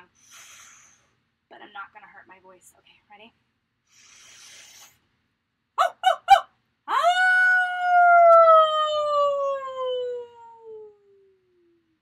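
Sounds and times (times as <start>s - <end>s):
woman breathing in: 0.2s - 1.2s, 3.9s - 5.0s
woman howling like a wolf: 6.9s - 11.3s.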